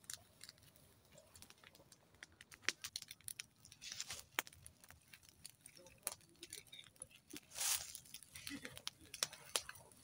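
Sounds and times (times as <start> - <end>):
campfire crackling: 0.0 - 10.0
rustle: 7.4 - 8.1.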